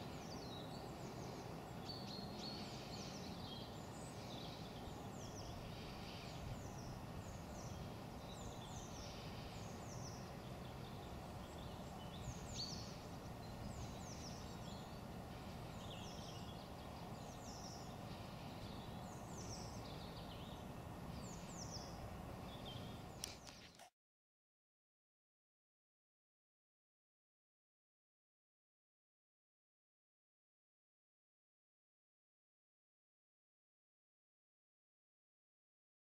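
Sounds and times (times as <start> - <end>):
small birds chirping: 0.0 - 23.9.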